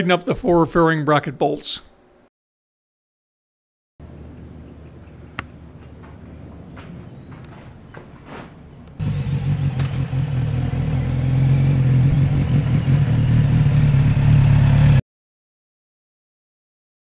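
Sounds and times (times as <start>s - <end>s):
motorcycle engine running: 9.0s - 15.0s.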